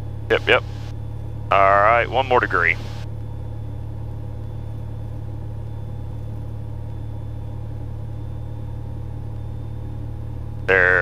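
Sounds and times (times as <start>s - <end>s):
propeller plane engine droning: 0.0s - 11.0s.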